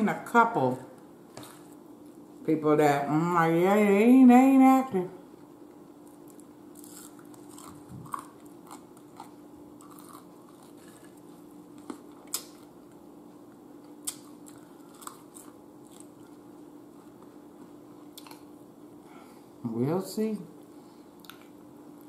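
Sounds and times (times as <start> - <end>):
steady low hum: 0.0 - 22.0
chewing fries: 5.4 - 18.6.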